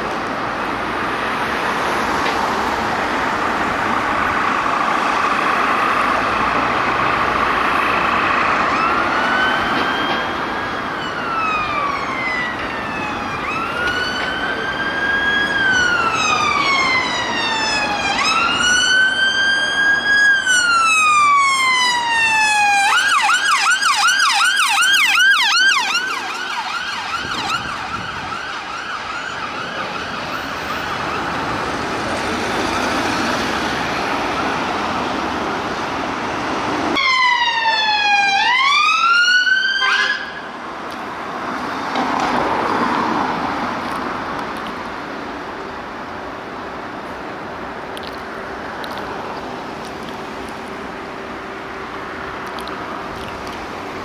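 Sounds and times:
traffic noise: 0:00.0 - 0:54.0
siren wailing: 0:08.0 - 0:33.2, 0:36.9 - 0:40.6
siren fast yelp: 0:08.7 - 0:31.4, 0:37.0 - 0:40.4.

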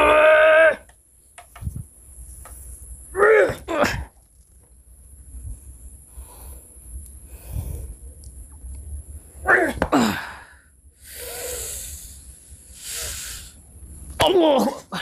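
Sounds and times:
long hissing exhale: 0:06.0 - 0:08.1, 0:10.1 - 0:13.7
man breathy puffs: 0:10.0 - 0:13.6
man crying out: 0:14.2 - 0:15.0.

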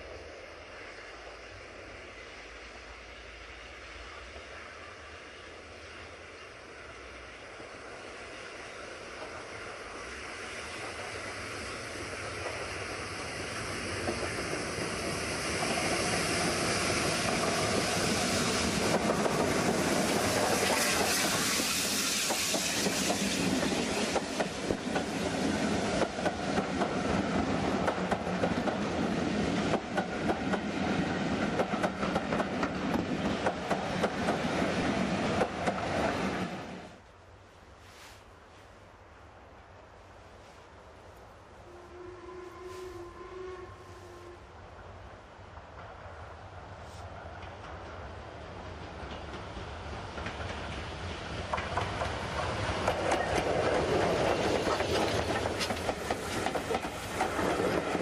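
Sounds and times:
steam locomotive passing: 0:00.0 - 0:38.7, 0:39.8 - 0:58.0
steam hissing: 0:00.7 - 0:27.2, 0:50.8 - 0:58.0
wheels clacking over rail joints: 0:48.8 - 0:58.0.

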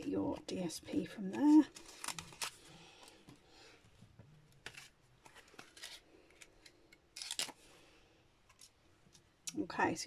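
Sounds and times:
paper crinkle: 0:01.2 - 0:03.2, 0:04.6 - 0:07.6
paper rustling: 0:04.6 - 0:06.5.

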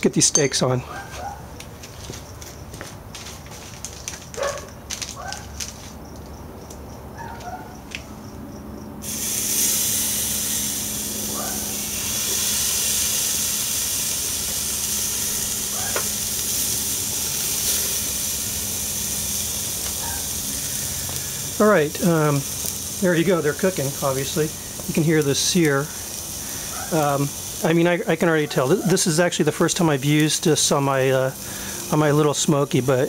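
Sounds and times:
steaks sizzling on grill: 0:09.0 - 0:33.0.

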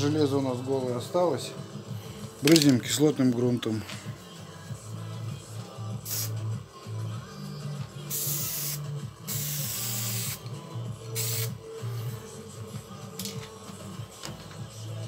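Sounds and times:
aerosol spray can hissing: 0:06.0 - 0:06.5, 0:08.0 - 0:10.4, 0:11.1 - 0:11.6.

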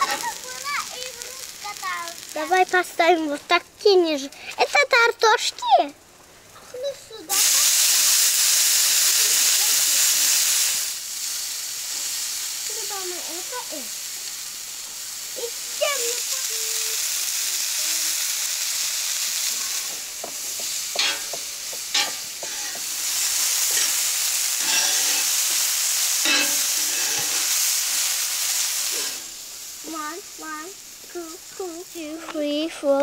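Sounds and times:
peppers sizzling on griddle: 0:00.0 - 0:33.0
metal tongs clicking on griddle: 0:19.9 - 0:22.9, 0:24.6 - 0:25.3, 0:26.2 - 0:27.4.

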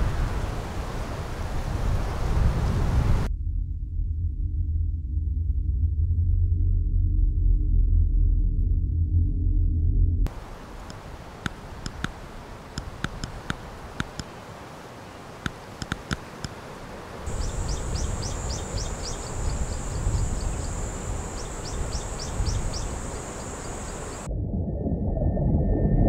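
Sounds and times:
low rumble: 0:03.2 - 0:10.3, 0:17.3 - 0:26.0
bird chirps: 0:17.3 - 0:24.3
high insect drone: 0:17.3 - 0:24.3.

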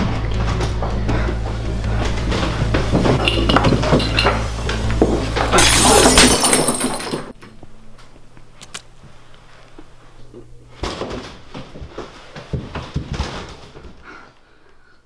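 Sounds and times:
glass bottle smashing: 0:03.2 - 0:04.4, 0:05.5 - 0:07.4.

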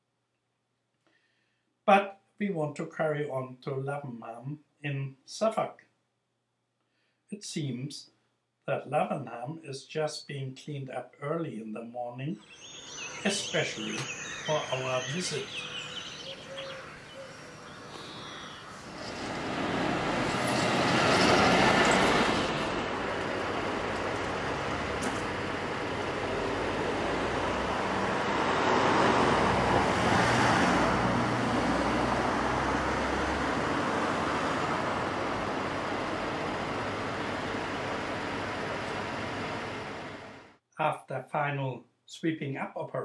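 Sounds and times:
vehicles passing: 0:12.4 - 0:40.3.

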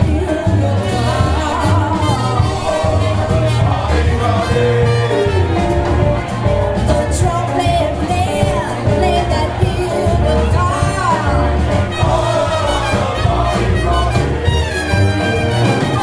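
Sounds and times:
woman singing: 0:00.0 - 0:03.1, 0:06.8 - 0:11.9
brass band playing: 0:00.0 - 0:16.0
low bass line: 0:00.0 - 0:16.0.

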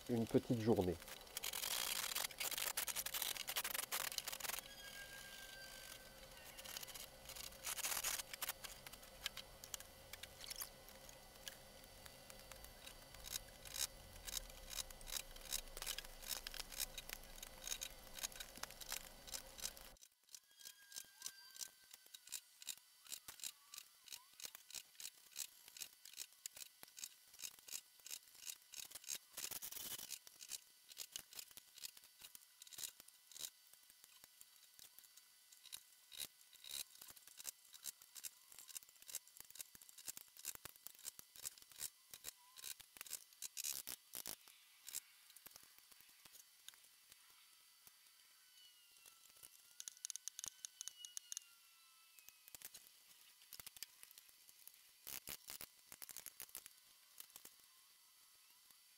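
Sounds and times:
metal scraping: 0:00.5 - 0:10.7.

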